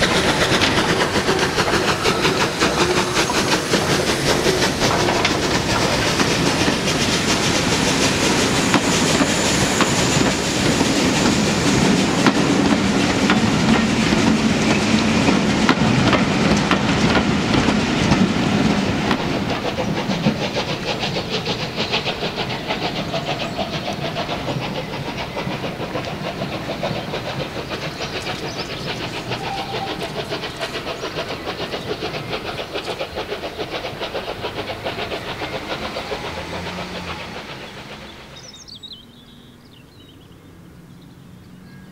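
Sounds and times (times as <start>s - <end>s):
steam hissing: 0.0s - 39.2s
distant steam train pulling away: 0.0s - 41.9s
steam locomotive moving slowly: 0.0s - 41.9s.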